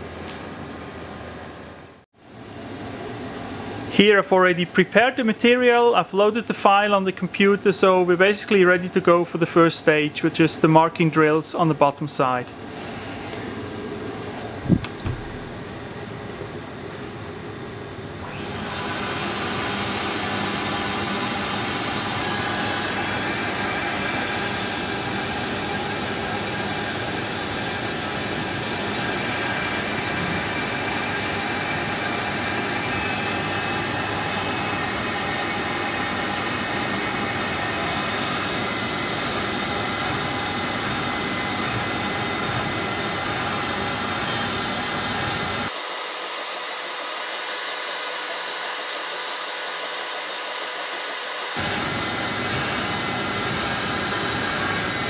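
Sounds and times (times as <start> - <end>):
milling machine running: 18.2 - 55.0
thin high whine: 21.8 - 55.0.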